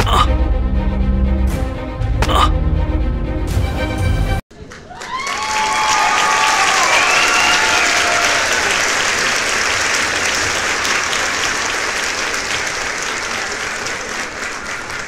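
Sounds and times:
crowd applause: 0:04.5 - 0:15.0.

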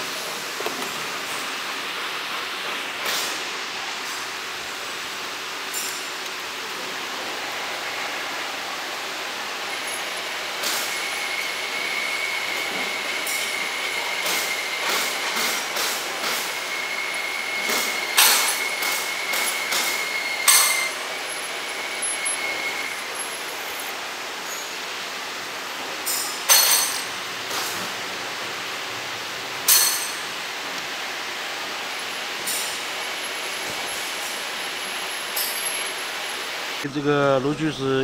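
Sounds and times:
lathe running: 0:00.0 - 0:24.4
cutting tool whine: 0:07.1 - 0:24.0
sharp metal clinks: 0:20.5 - 0:21.0, 0:26.1 - 0:27.2, 0:29.7 - 0:30.3, 0:35.3 - 0:36.0.

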